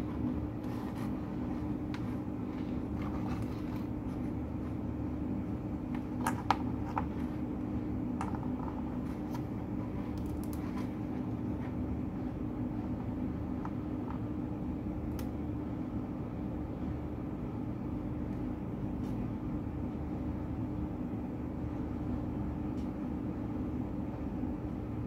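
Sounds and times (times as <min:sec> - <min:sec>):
low background hum with held tone: 0:00.0 - 0:25.0
wires handled with light clicks: 0:10.0 - 0:10.9.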